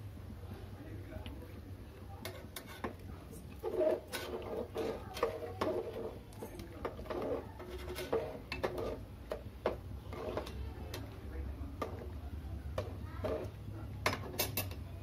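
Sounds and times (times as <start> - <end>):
ladle scraping a metal pot: 2.2 - 11.1, 12.8 - 14.8
liquid swishing: 2.3 - 12.1.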